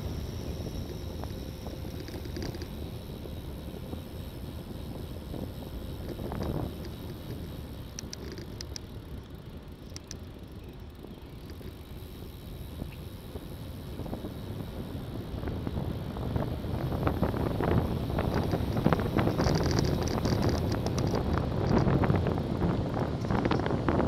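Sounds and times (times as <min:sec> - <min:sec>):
wind rushing over microphone: 0:00.0 - 0:09.1, 0:11.0 - 0:24.0
tyre and road noise: 0:00.0 - 0:24.0
light ticks: 0:06.0 - 0:08.9, 0:09.8 - 0:10.2, 0:18.2 - 0:21.9.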